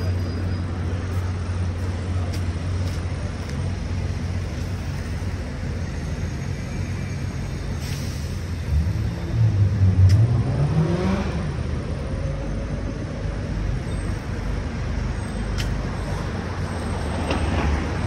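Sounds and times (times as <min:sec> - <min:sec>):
street noise: 0:00.0 - 0:18.0
vehicle engines rumbling: 0:00.0 - 0:18.0.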